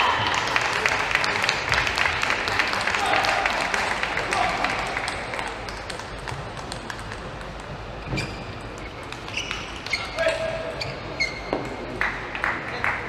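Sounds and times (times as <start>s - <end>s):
shoes squeaking on floor: 8.0s - 11.8s.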